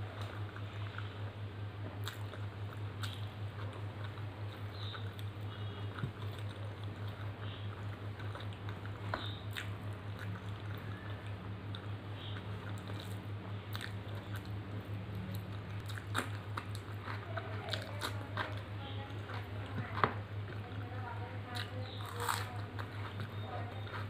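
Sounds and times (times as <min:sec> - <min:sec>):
steady low hum: 0:00.0 - 0:24.0
wet chewing: 0:00.0 - 0:24.0.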